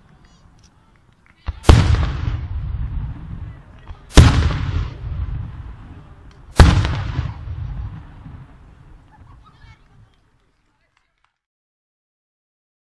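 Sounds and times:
firework shells bursting: 3.8s - 9.4s.

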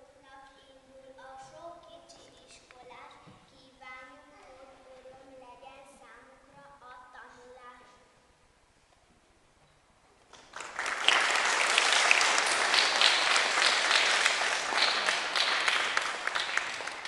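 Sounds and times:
congregation applauding: 10.3s - 17.0s.

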